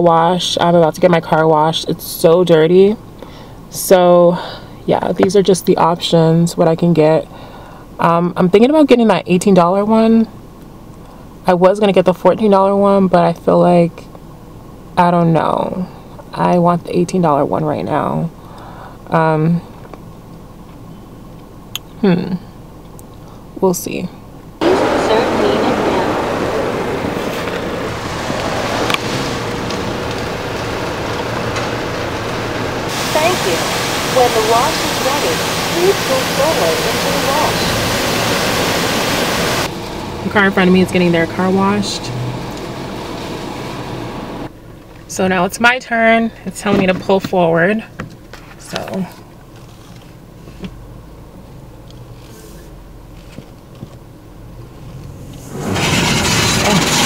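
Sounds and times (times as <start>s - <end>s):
car idling: 0.0s - 46.6s, 47.4s - 57.0s
car wash equipment: 24.6s - 46.0s, 52.1s - 57.0s.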